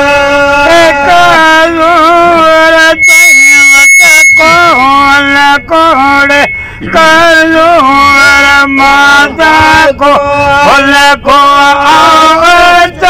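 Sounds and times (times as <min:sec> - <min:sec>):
man singing unaccompanied: 0:00.0 - 0:13.0
singer breathing: 0:06.5 - 0:07.0.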